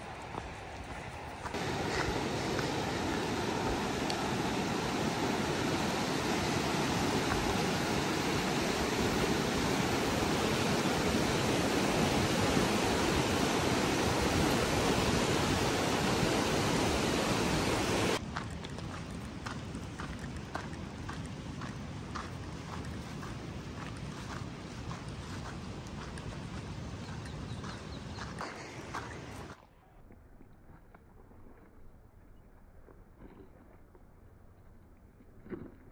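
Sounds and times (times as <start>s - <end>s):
whitewater roaring: 1.5s - 18.2s.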